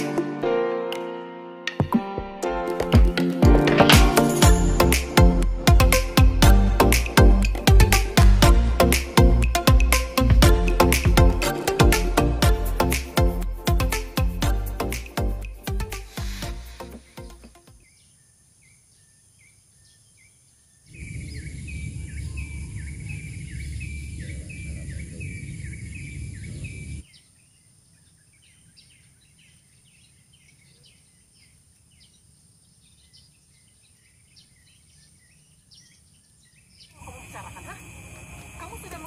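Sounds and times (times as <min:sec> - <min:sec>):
bird chirping: 0:16.3 - 0:37.6.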